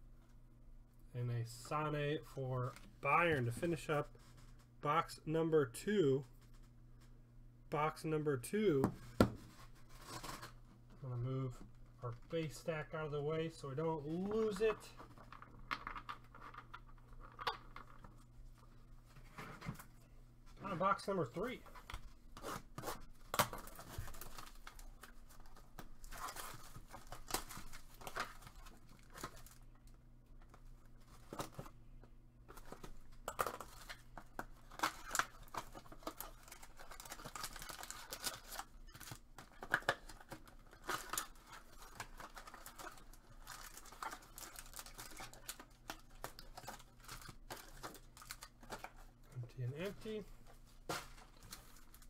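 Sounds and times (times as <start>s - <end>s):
shrink wrap tearing and crinkling: 22.4s - 30.0s, 33.1s - 49.2s
foil packs handled: 32.5s - 49.2s.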